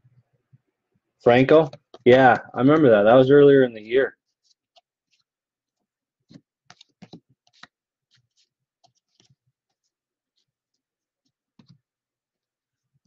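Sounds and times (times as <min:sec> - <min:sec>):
trading cards clicking and snapping: 0:06.3 - 0:07.8.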